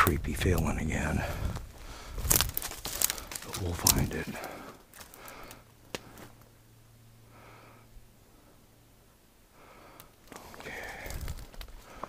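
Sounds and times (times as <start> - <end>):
person breathing hard: 1.2 - 3.4, 4.3 - 6.4, 7.2 - 8.7, 9.5 - 12.0
footsteps on forest floor: 1.4 - 6.4, 10.3 - 12.0.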